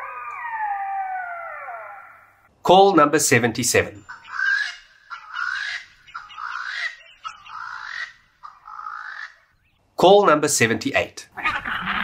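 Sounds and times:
animal harsh rasping calls: 4.1 - 9.5, 11.4 - 12.0.

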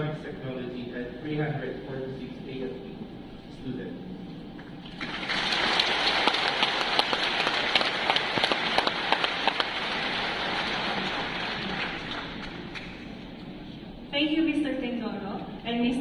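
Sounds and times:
audience applauding: 4.8 - 13.2.

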